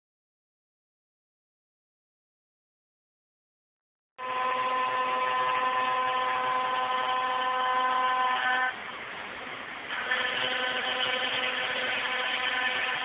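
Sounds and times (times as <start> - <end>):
router spindle high whine: 4.2 - 8.8, 9.9 - 13.0
rushing noise of cutting: 4.2 - 8.8, 9.9 - 13.0.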